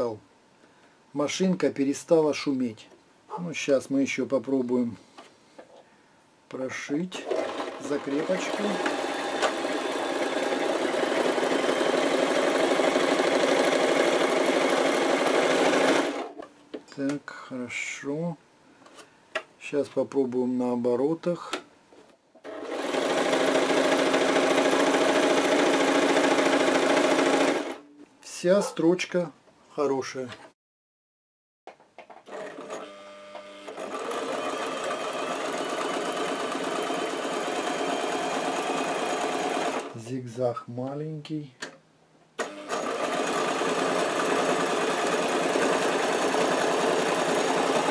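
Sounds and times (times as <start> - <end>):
sewing machine stitching: 7.2 - 16.4, 22.4 - 27.8, 32.3 - 40.0, 42.4 - 47.9.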